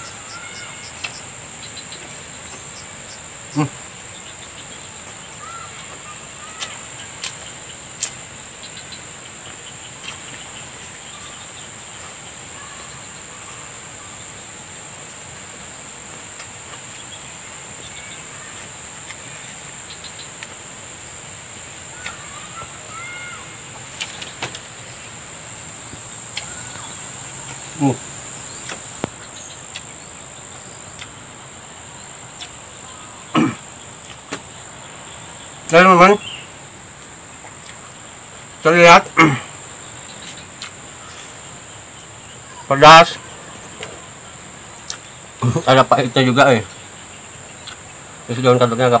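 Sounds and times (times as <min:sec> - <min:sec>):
insect chorus buzzing: 0:00.0 - 0:49.0
eating clicks and smacks: 0:06.6 - 0:08.2, 0:28.6 - 0:29.9, 0:30.9 - 0:31.2, 0:32.4 - 0:32.6, 0:37.5 - 0:37.8, 0:47.6 - 0:47.9.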